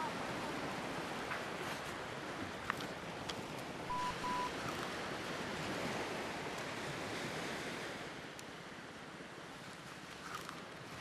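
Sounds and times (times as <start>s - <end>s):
surf washing on sandy beach: 0.0s - 11.0s
short high beeps: 3.9s - 4.6s.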